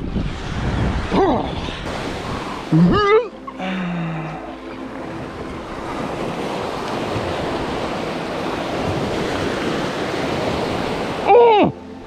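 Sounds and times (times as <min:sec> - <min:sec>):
wind buffeting microphone: 0:00.0 - 0:03.2, 0:05.0 - 0:11.2
ocean waves breaking: 0:00.0 - 0:12.0.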